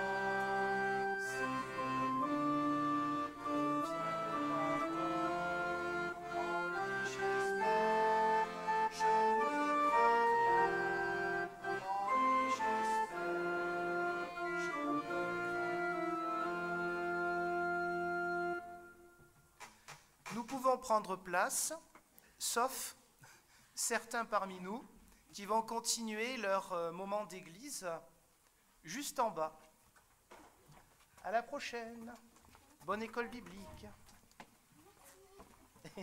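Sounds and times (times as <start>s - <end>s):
organ playing hymn chords: 0.0s - 19.4s.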